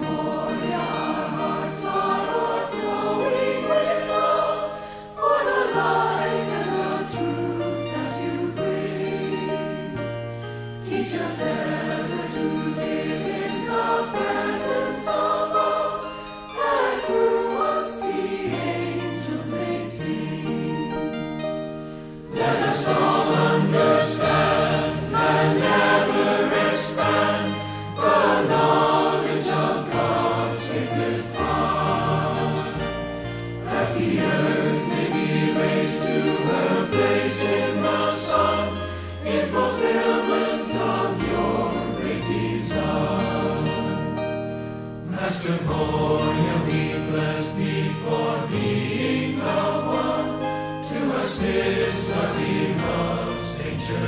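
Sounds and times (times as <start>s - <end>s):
choir singing a hymn: 0.0s - 54.0s
instrumental accompaniment: 0.0s - 54.0s.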